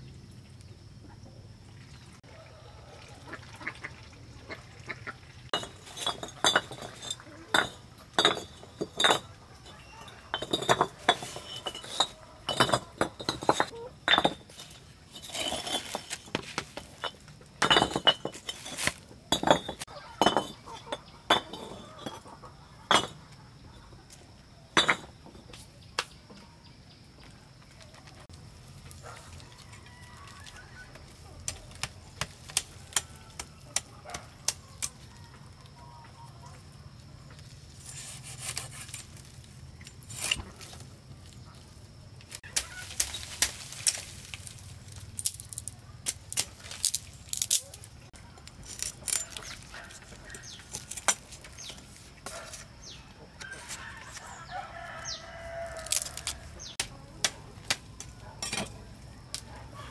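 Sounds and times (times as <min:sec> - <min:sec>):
hard objects clinking and knocking: 0:05.5 - 0:22.3, 0:22.9 - 0:23.3, 0:24.8 - 0:25.5.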